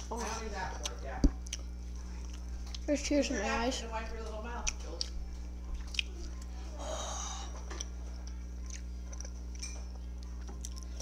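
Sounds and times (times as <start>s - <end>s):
steady low hum: 0.0s - 11.0s
boy wheezy breath: 6.7s - 7.6s.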